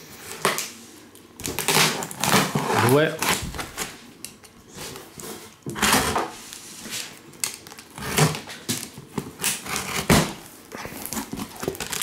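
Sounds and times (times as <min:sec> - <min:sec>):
cardboard and tape scraping: 0:01.4 - 0:04.0, 0:04.7 - 0:12.0.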